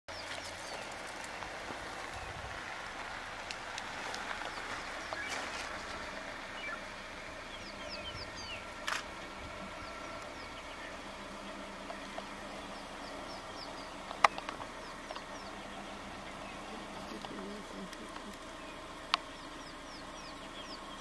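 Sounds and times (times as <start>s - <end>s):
high bird chirps: 4.4s - 17.2s, 18.4s - 21.0s.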